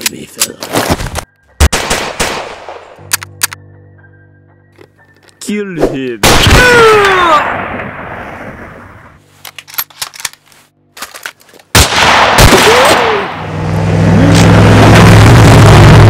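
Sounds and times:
continuous gunfire: 0:01.6 - 0:02.9
rifle shot: 0:01.6 - 0:02.9, 0:06.2 - 0:06.8, 0:11.7 - 0:13.4.

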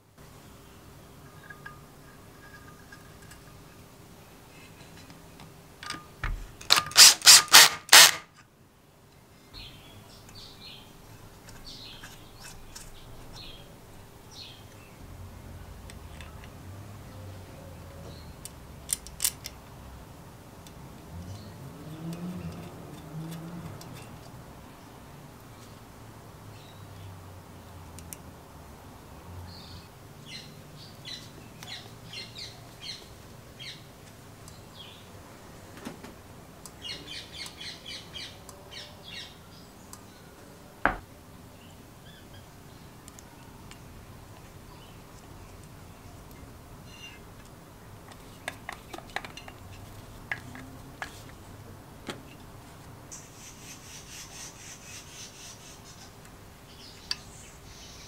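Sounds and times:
small tool clicks: 0:06.6 - 0:08.5, 0:18.4 - 0:19.6
cordless drill bursts: 0:06.7 - 0:08.3.

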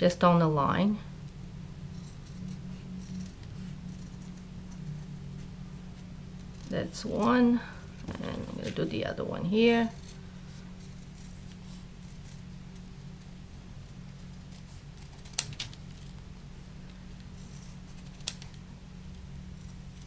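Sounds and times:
steady low hum: 0:00.0 - 0:20.0
scissors snipping fabric: 0:13.8 - 0:15.8, 0:17.5 - 0:18.6.

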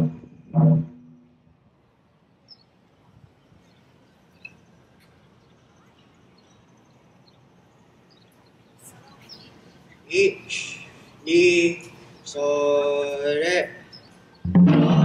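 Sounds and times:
taiko drum stroke ringing: 0:14.4 - 0:15.0.

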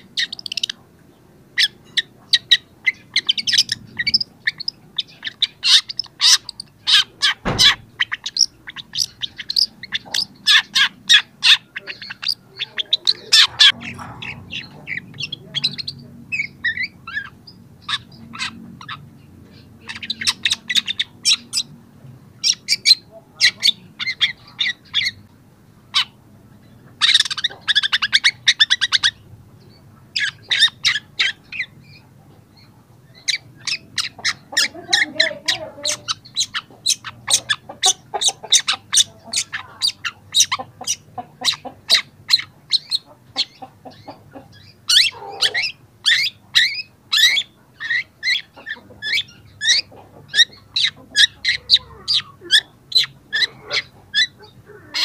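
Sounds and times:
shrike singing: 0:01.6 - 0:18.6.

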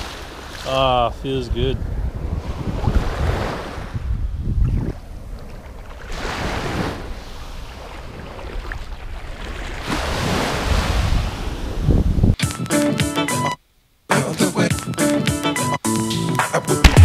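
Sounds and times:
small waves washing on beach: 0:00.0 - 0:03.9, 0:05.0 - 0:11.9
wind buffeting microphone: 0:00.0 - 0:12.4.

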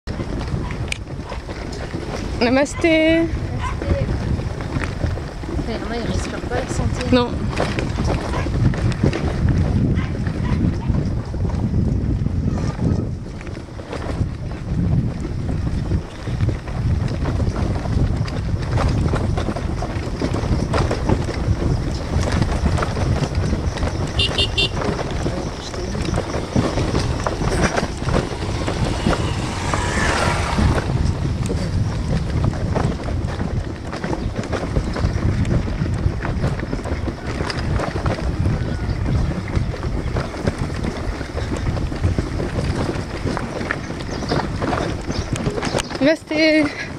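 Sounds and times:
wind buffeting microphone: 0:00.0 - 0:46.9
low rumble: 0:03.3 - 0:36.4
knocks and rattles: 0:13.0 - 0:46.9.

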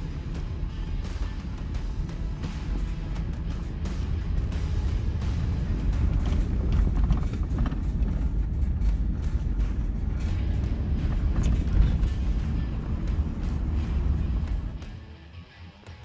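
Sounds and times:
tyres rumbling on gravel: 0:00.0 - 0:15.0
small crunches and rattles: 0:05.9 - 0:12.6.

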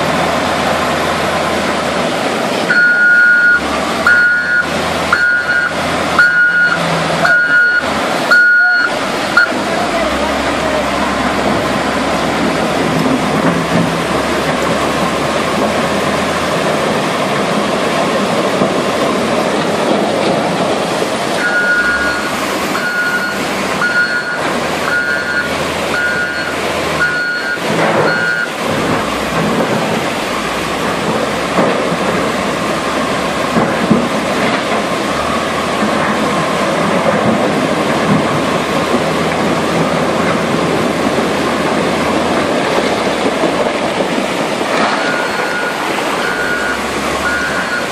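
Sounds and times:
floodwater torrent rushing: 0:00.0 - 0:47.9
reversing alarm beeps: 0:02.7 - 0:09.6, 0:21.4 - 0:28.6, 0:44.9 - 0:47.9.

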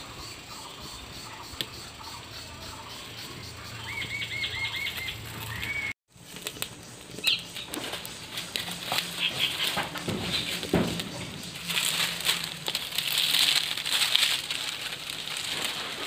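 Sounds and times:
bird chirping: 0:00.0 - 0:16.0
fire crackling and popping: 0:05.6 - 0:16.0.

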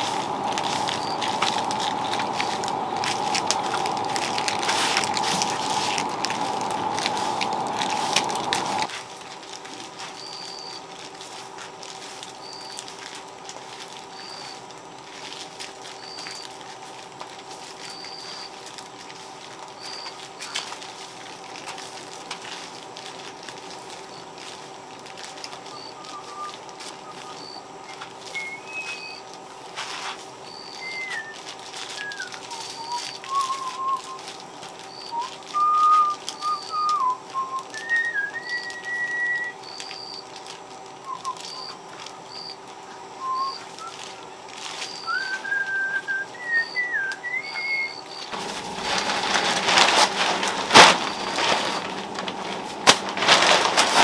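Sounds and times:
person whistling: 0:00.0 - 0:08.9, 0:25.7 - 0:29.2, 0:30.5 - 0:34.3, 0:34.9 - 0:40.2, 0:41.0 - 0:41.8, 0:43.2 - 0:49.4
broom swishing on concrete: 0:00.0 - 0:09.1, 0:29.7 - 0:30.3, 0:48.3 - 0:54.0
high bird chirp: 0:38.4 - 0:40.3, 0:41.2 - 0:42.6.

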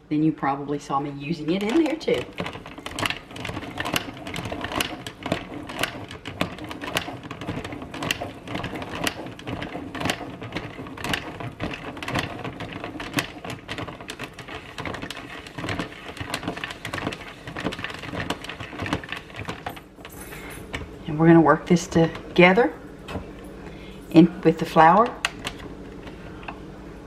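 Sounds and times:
rotary grater clicking and rattling: 0:01.4 - 0:20.9.

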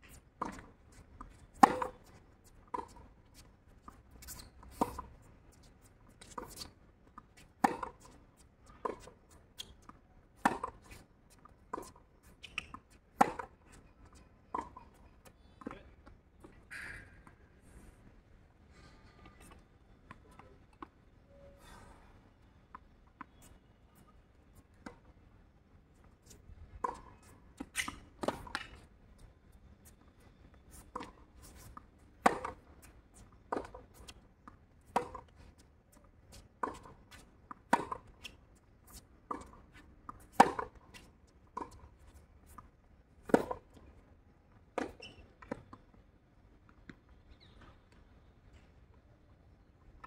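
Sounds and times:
tennis ball bouncing: 0:01.3 - 0:03.1, 0:07.4 - 0:08.2, 0:08.8 - 0:11.0, 0:11.7 - 0:15.0, 0:26.8 - 0:28.9, 0:30.8 - 0:34.2, 0:34.8 - 0:35.4, 0:36.6 - 0:41.8, 0:43.2 - 0:43.8.

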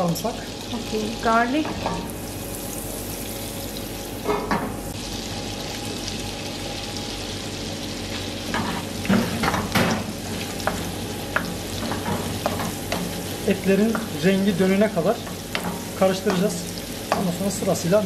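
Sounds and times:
beef frying: 0:00.0 - 0:18.0
oil sizzling in a pan: 0:00.0 - 0:18.0.

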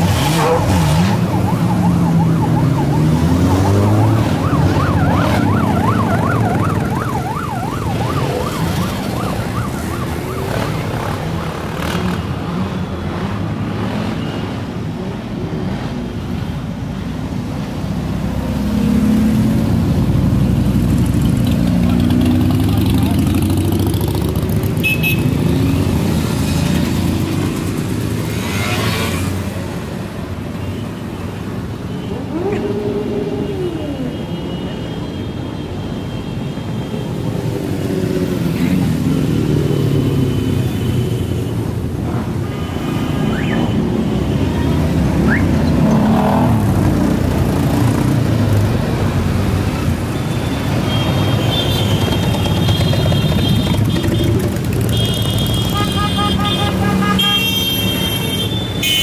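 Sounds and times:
engines revving: 0:00.0 - 0:07.0, 0:07.7 - 0:14.3, 0:17.8 - 0:29.8, 0:43.0 - 0:49.9
motorcycles and cars passing: 0:00.0 - 0:59.0.

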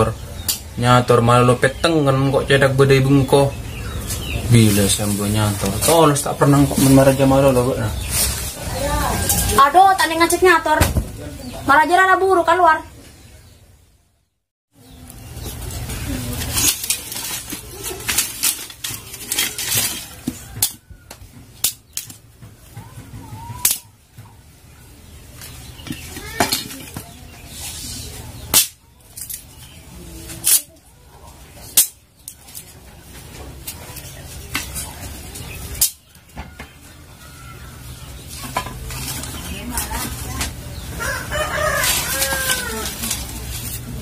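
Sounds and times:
twigs rustling and scraping: 0:00.3 - 0:12.4, 0:14.8 - 0:44.0
wooden sticks snapping: 0:16.4 - 0:22.3, 0:23.5 - 0:24.0, 0:28.4 - 0:29.6, 0:30.4 - 0:30.7, 0:31.7 - 0:32.8, 0:35.7 - 0:36.2.

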